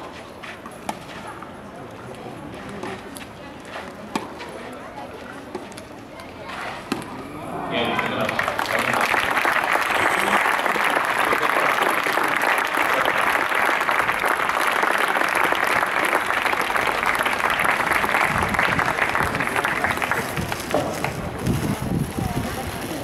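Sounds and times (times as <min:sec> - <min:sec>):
crowd applauding: 0:07.8 - 0:21.2.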